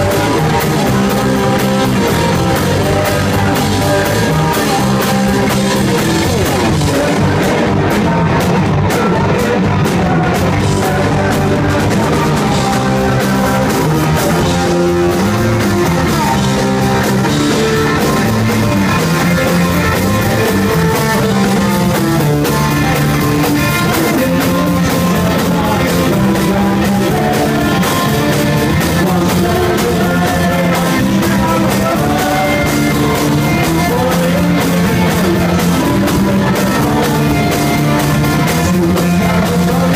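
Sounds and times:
person singing: 0.0s - 39.9s
punk rock band playing: 0.0s - 39.9s.

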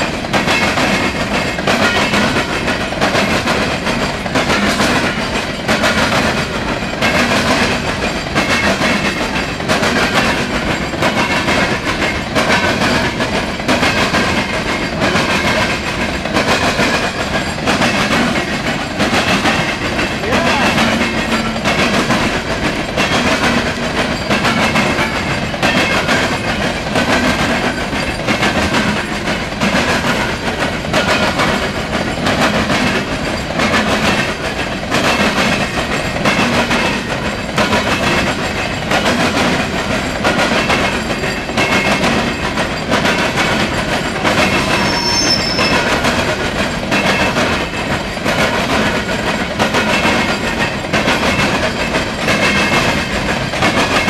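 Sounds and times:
freight train wheels clacking: 0.0s - 54.0s.

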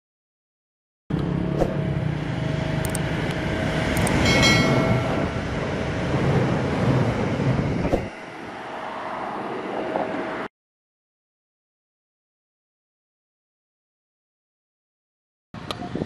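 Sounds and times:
locomotive engine rumbling: 1.1s - 10.5s
train rolling noise: 1.2s - 10.5s.

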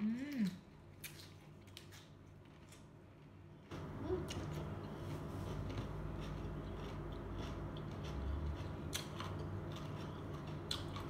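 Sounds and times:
carrot crunching: 4.2s - 11.0s
chewing: 4.2s - 11.0s.

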